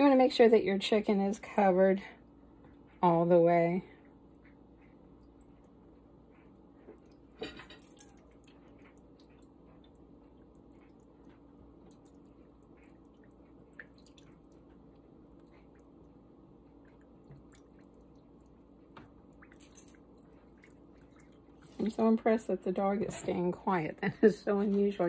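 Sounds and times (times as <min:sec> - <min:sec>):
faint steady hum: 0:00.0 - 0:25.0
liquid trickling and dripping: 0:04.0 - 0:22.7.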